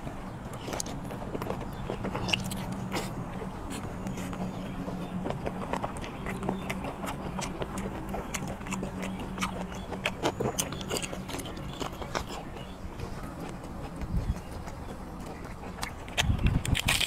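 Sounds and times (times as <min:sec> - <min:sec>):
man chewing with wet smacking: 0:00.0 - 0:17.0.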